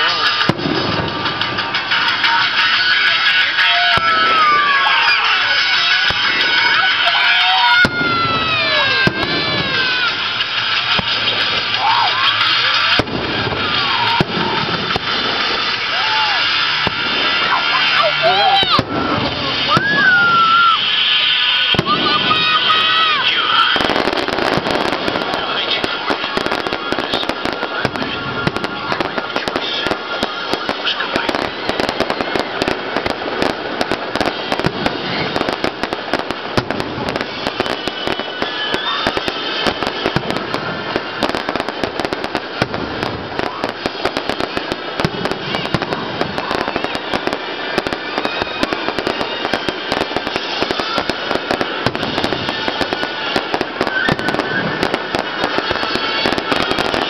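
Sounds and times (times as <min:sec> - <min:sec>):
fireworks popping and crackling: 0:00.0 - 0:57.0
firework shells bursting: 0:03.8 - 0:21.0, 0:21.7 - 0:57.0.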